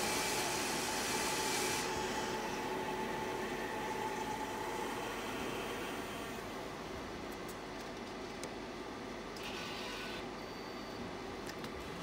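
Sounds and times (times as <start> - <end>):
loud machine hiss: 0.0 - 2.9
vending machine hum: 0.0 - 12.0.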